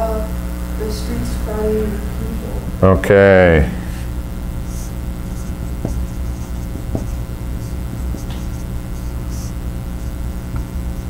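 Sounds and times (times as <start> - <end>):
low room hum: 0.0 - 11.0
marker writing on whiteboard: 4.7 - 11.0.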